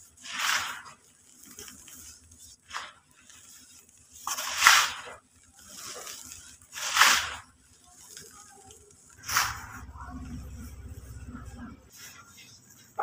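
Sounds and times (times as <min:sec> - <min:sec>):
dust pouring into metal tub: 0:00.0 - 0:11.2.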